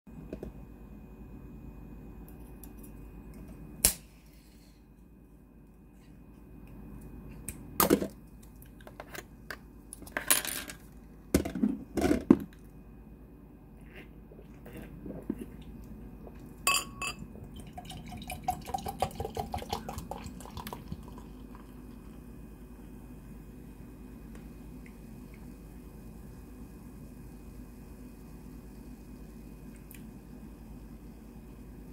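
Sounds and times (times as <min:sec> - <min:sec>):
soda pouring into glass: 0:16.6 - 0:22.3.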